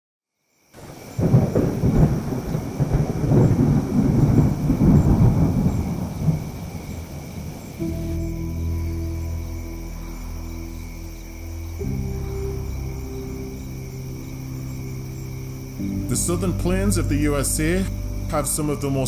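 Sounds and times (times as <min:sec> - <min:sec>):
thunder rumbling: 0:00.8 - 0:19.0
background music low tones: 0:01.1 - 0:19.0.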